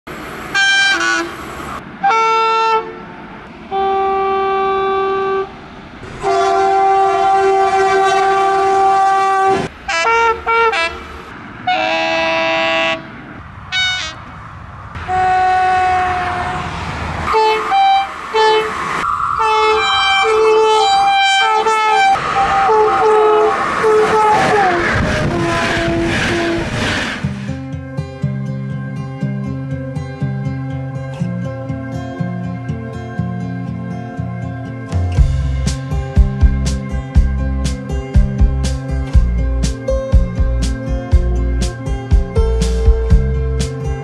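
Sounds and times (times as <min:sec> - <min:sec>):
passing trains rushing: 0:00.1 - 0:27.8, 0:35.0 - 0:44.0
locomotive air horn blasts: 0:00.5 - 0:14.3, 0:15.0 - 0:27.5.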